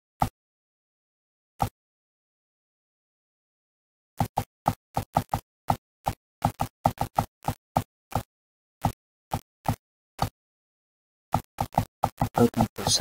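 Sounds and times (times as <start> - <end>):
computer mouse clicking: 4.2 - 10.3, 11.3 - 12.7.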